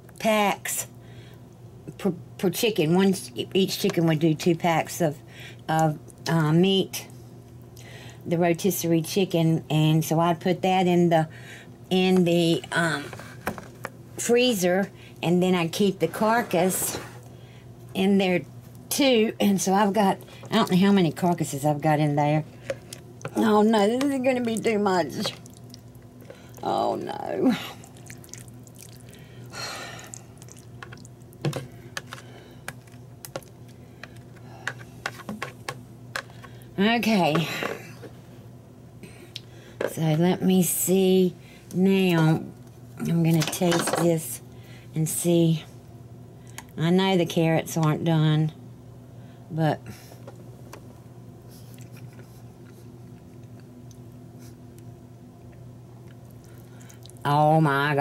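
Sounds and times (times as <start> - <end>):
low steady hum: 0.0 - 58.0
person chewing: 25.2 - 26.6, 27.8 - 34.8.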